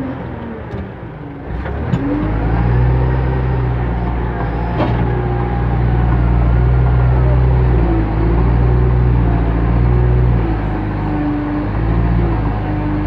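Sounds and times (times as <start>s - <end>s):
diesel engine running: 0.0s - 13.0s
hydraulic whines: 0.0s - 13.0s
loader bucket clanks: 0.7s - 10.8s.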